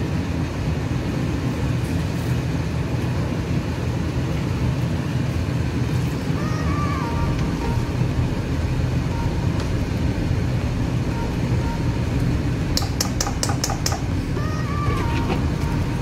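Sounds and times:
steady low rumble: 0.0s - 16.0s
spatula knocking on metal wok: 12.8s - 14.1s.

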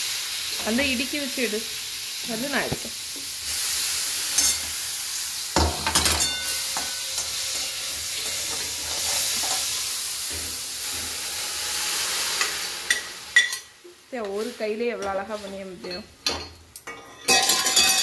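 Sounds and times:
onions sizzling in oil: 0.0s - 18.0s
metal spatula scraping pan: 5.8s - 13.6s.

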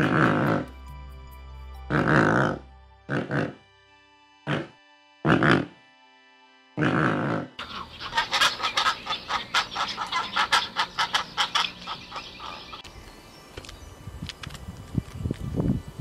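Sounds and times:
pelican harsh call: 6.8s - 12.8s
pelicans clucking calls: 6.9s - 12.9s.

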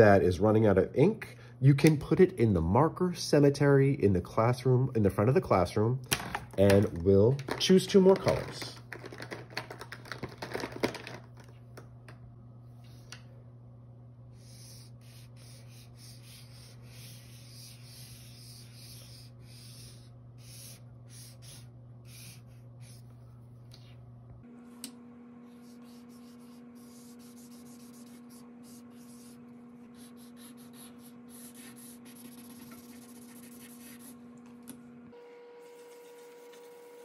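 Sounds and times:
markers scratching on paper: 14.4s - 23.1s, 25.5s - 34.2s.

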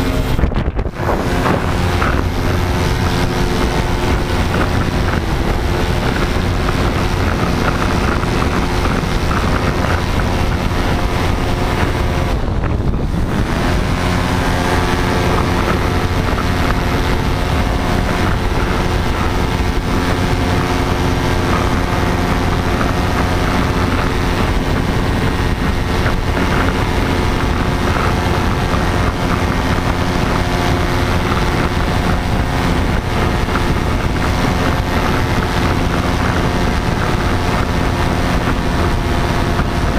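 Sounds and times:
paramotor engine and propeller: 0.0s - 39.9s
wind buffeting microphone: 0.0s - 39.9s.

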